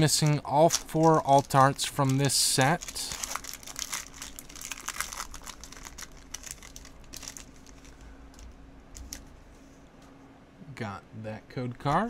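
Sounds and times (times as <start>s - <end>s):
foil wrapper crinkling: 0.0s - 9.2s.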